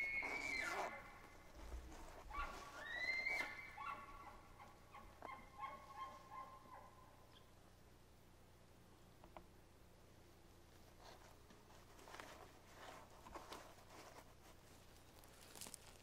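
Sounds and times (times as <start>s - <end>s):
elk bugling whistle: 0.0s - 1.1s, 2.4s - 4.2s.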